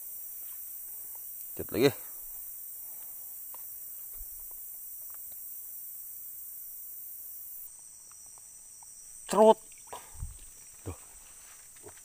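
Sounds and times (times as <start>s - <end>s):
crickets chirping: 0.0s - 12.0s
faint ticks: 2.3s - 5.6s.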